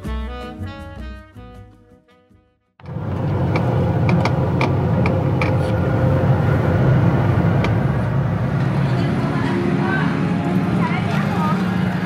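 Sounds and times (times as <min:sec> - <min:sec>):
vehicle low rumble: 0:02.8 - 0:12.0.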